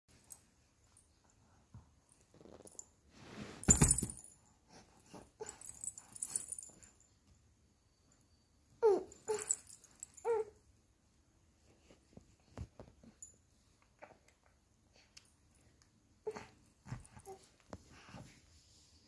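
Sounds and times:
handling rustle: 2.2s - 4.4s.

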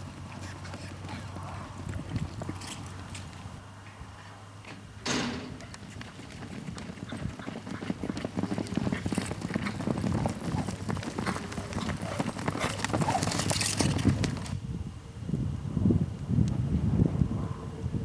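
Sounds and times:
horses galloping on dirt: 0.0s - 3.8s, 5.3s - 14.6s.

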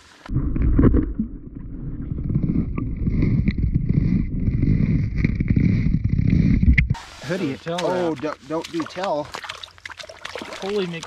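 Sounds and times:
muffled underwater rumble: 0.3s - 7.1s.

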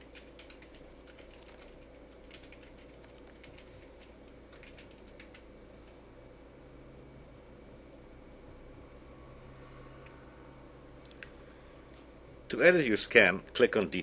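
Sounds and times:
faint irregular clicks: 0.0s - 6.0s, 11.0s - 12.1s
steady low hum: 0.0s - 14.0s.

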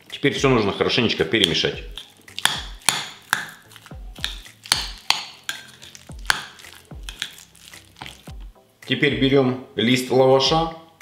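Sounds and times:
spoon stirring thick spread: 1.2s - 8.6s
spoon clicking against glass bowl: 1.4s - 8.2s.

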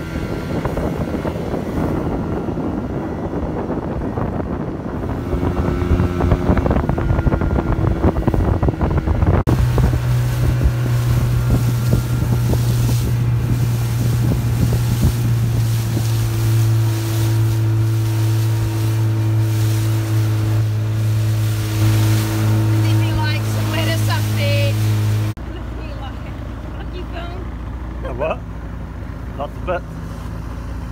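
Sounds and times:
water splashing against hull: 0.0s - 26.5s
wind buffeting microphone: 0.0s - 27.4s
motorboat engine running: 0.0s - 30.9s.

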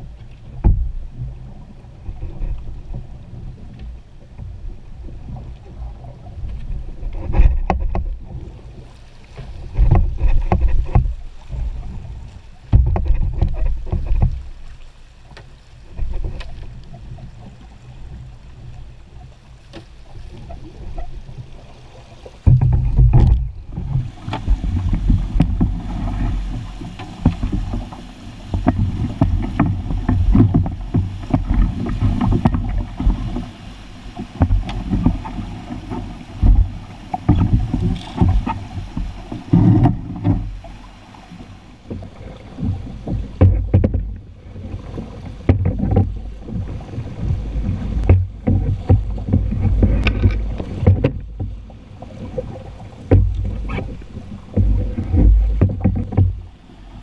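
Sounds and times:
rushing water of a rapid: 0.0s - 57.0s
wind buffeting microphone: 22.4s - 57.0s.

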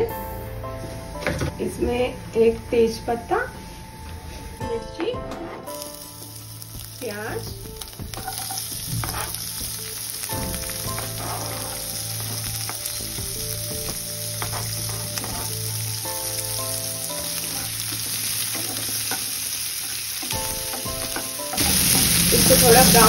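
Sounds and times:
onion sizzling in oil: 5.6s - 23.0s
spatula stirring in pan: 8.0s - 23.0s.

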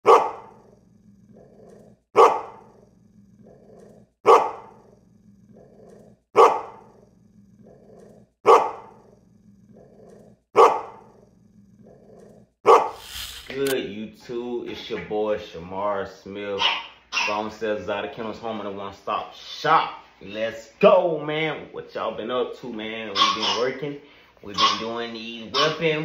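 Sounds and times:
dog barking: 0.0s - 0.6s, 2.2s - 2.7s, 4.2s - 4.8s, 6.4s - 6.9s, 8.4s - 9.0s, 10.6s - 11.1s, 12.6s - 13.1s, 16.6s - 17.5s, 23.1s - 23.7s, 24.6s - 26.0s
low dog growl: 0.5s - 13.8s.

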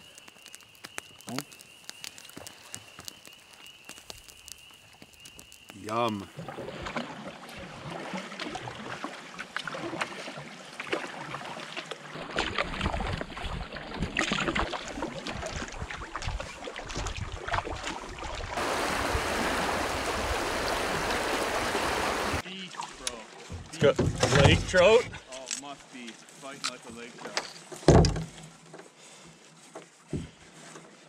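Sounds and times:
paddle splashing and dripping: 0.0s - 24.0s
water lapping at hull: 6.3s - 25.3s.

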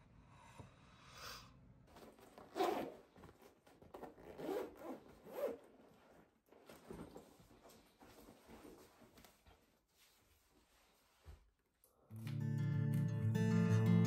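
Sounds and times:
zipper rasping: 1.9s - 6.2s.

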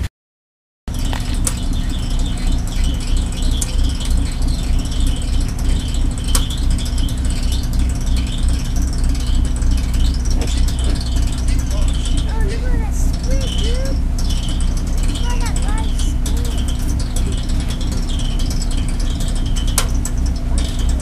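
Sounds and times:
boat engine idling: 0.9s - 21.0s.

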